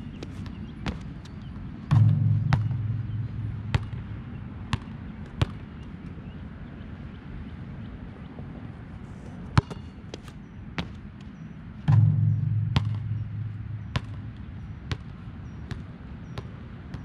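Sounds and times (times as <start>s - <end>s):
basketball bouncing: 0.2s - 5.8s, 9.6s - 9.9s, 11.9s - 17.0s
low hum: 1.9s - 5.2s, 11.8s - 15.6s.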